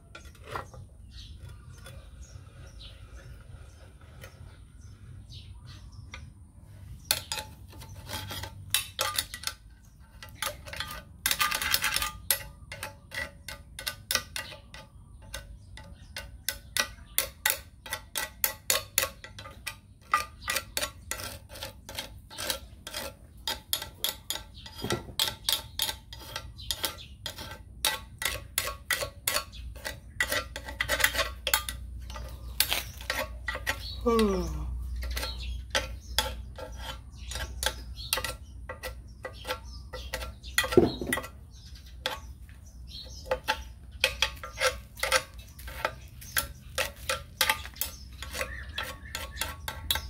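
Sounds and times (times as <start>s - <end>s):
tool scraping metal: 0.0s - 50.0s.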